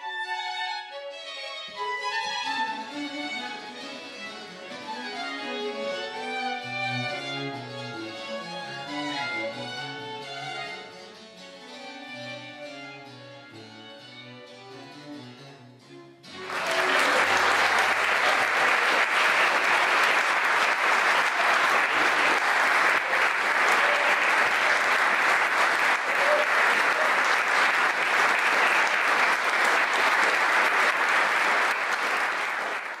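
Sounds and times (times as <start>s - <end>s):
audience applauding: 16.3s - 33.0s.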